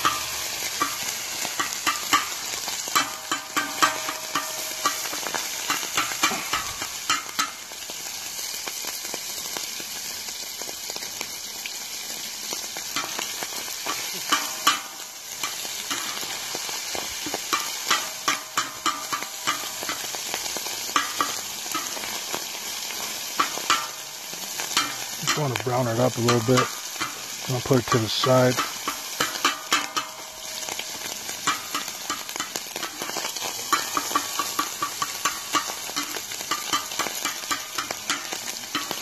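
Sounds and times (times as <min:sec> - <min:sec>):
sausage sizzling: 0:00.0 - 0:39.0
metal spatula scraping: 0:28.6 - 0:39.0.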